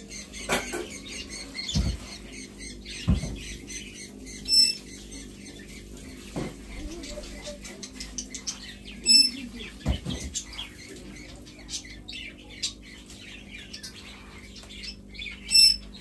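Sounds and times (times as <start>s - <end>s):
small birds chirping: 0.0s - 16.0s
parakeet shrill whistled calls: 4.5s - 4.9s, 15.4s - 15.9s.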